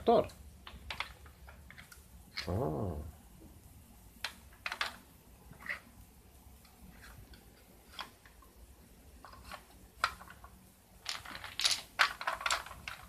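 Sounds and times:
wooden blocks clicking together: 0.0s - 2.6s, 4.2s - 5.9s, 9.3s - 13.0s.

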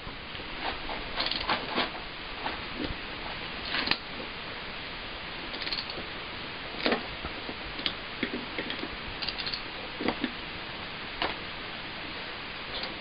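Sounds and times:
ratchet wrench clicking: 5.5s - 6.0s, 9.2s - 9.6s.

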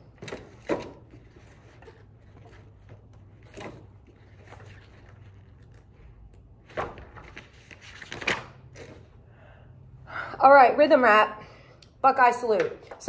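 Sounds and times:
pages rustling: 0.2s - 9.1s.

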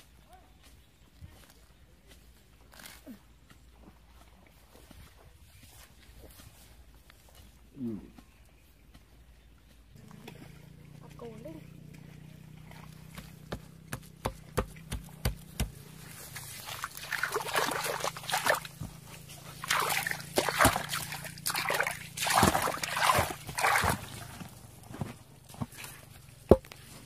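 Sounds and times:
muddy water sloshing and splashing: 10.0s - 27.0s
hands squelching in wet mud: 15.0s - 24.8s.

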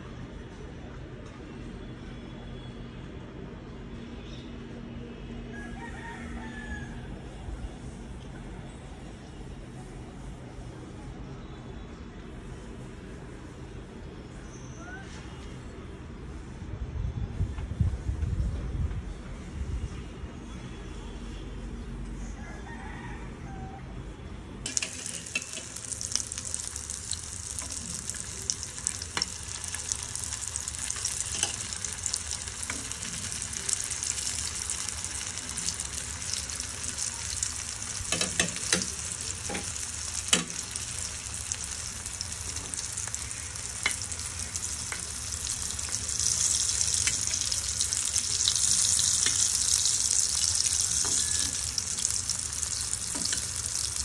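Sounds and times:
patties sizzling in hot oil: 24.6s - 54.0s
oil popping: 24.7s - 54.0s.

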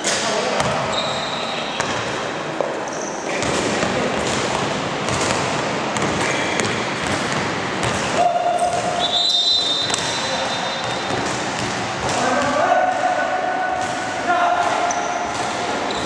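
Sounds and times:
game crowd noise: 0.0s - 16.0s
basketball dribbling: 3.4s - 13.1s.

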